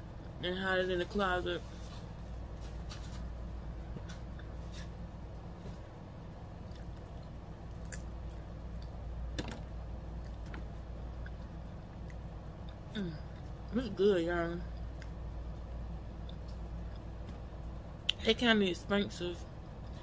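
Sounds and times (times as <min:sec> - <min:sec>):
steady low hum: 0:00.0 - 0:20.0
person chewing: 0:06.6 - 0:09.0.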